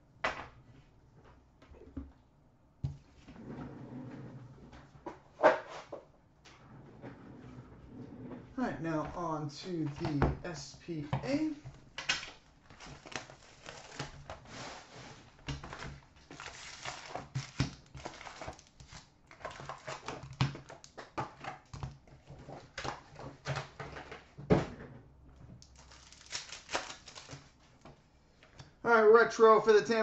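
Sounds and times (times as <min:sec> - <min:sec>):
wrappers crinkling: 0:12.7 - 0:20.8, 0:25.6 - 0:27.8.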